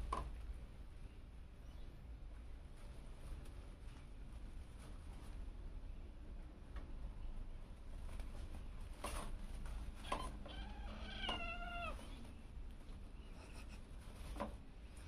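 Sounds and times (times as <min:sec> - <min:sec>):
kitten mewing: 0:10.0 - 0:12.2.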